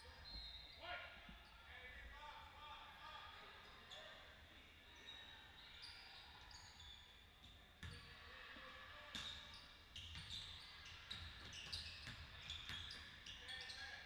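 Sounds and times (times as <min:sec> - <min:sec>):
basketball bouncing on court: 0:07.8 - 0:08.0, 0:10.0 - 0:10.5, 0:11.1 - 0:13.0
shoes squeaking on court: 0:09.1 - 0:14.0.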